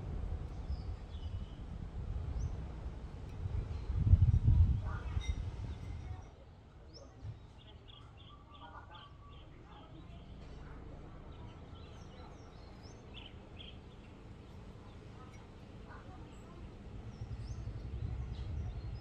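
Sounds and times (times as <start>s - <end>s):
small birds chirping: 0.4s - 2.6s, 4.8s - 19.0s.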